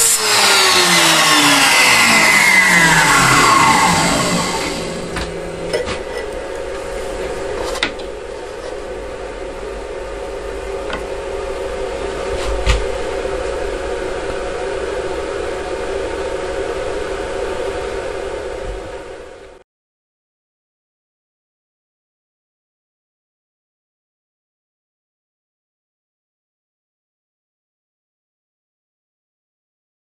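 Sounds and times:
milling machine humming: 0.0 - 19.6.

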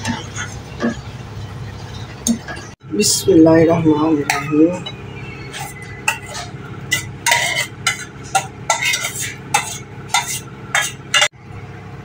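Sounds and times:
spoon scraping a cooking vessel: 4.9 - 11.3.

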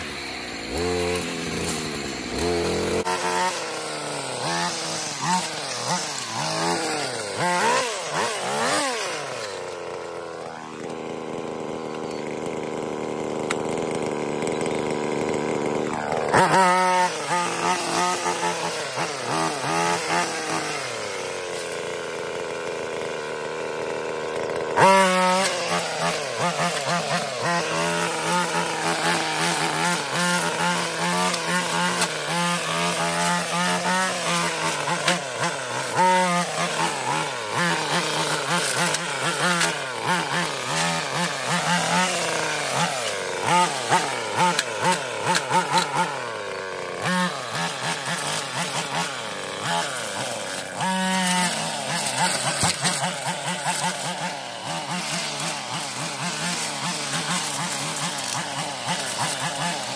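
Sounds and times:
brushcutter engine revving: 0.0 - 59.9.

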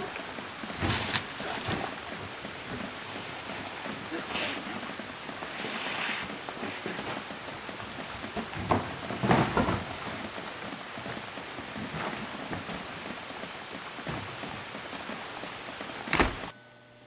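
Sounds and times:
steady outdoor hiss: 0.0 - 16.5
box scraping through doorway: 5.5 - 7.3
front door banging shut: 16.1 - 16.5.

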